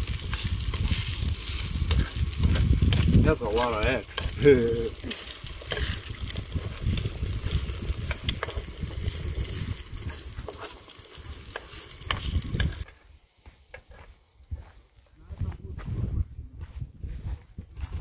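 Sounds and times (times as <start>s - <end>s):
eggs sizzling in a skillet: 0.0s - 14.8s
spatula scraping a pan: 0.1s - 13.0s.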